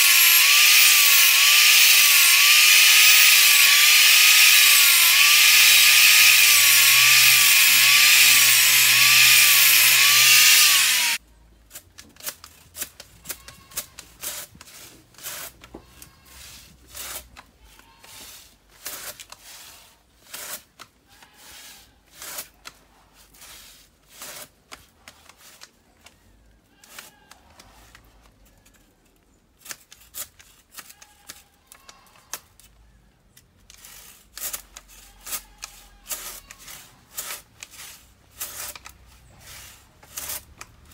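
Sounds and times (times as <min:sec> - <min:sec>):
angle grinder on steel blade: 0:00.0 - 0:11.2, 0:33.8 - 0:40.9
hand saw rasping wood: 0:00.0 - 0:11.2, 0:12.8 - 0:24.6, 0:33.7 - 0:40.9.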